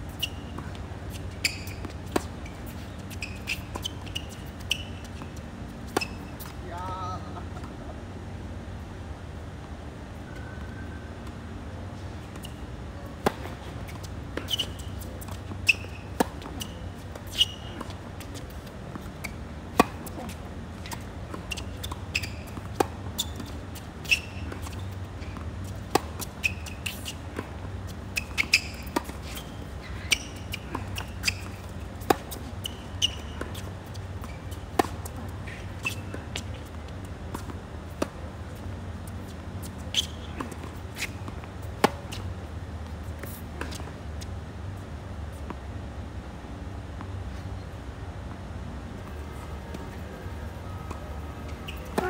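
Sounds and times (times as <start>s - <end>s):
steady low hum: 0.0s - 52.0s
shoe squeaks: 0.1s - 6.6s, 12.3s - 12.6s, 13.3s - 37.5s, 39.1s - 42.3s, 49.1s - 52.0s
ball bouncing on court: 50.9s - 52.0s
tennis ball off racket strings: 50.9s - 52.0s.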